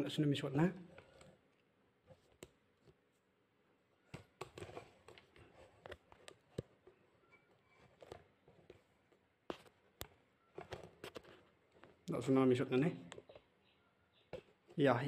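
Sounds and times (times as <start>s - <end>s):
faint clicks and taps: 0.9s - 3.2s, 4.0s - 12.2s, 13.0s - 13.6s.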